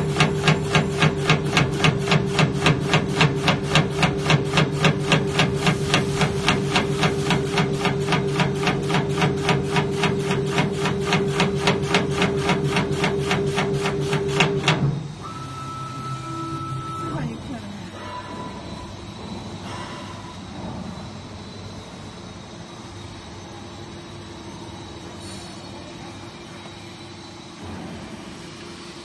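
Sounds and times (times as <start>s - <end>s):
meat slicer knocking: 0.0s - 15.0s.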